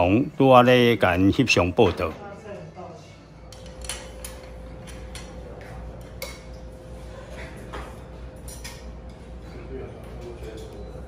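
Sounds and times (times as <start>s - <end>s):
steady low hum: 0.0s - 11.0s
tableware clinking: 3.4s - 6.8s, 7.4s - 9.5s.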